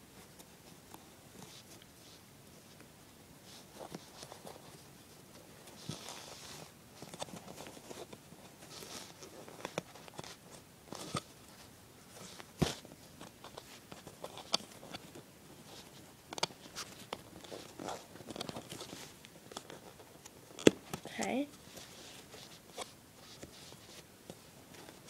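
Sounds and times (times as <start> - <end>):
fabric rustling: 3.4 - 19.2, 21.6 - 25.0.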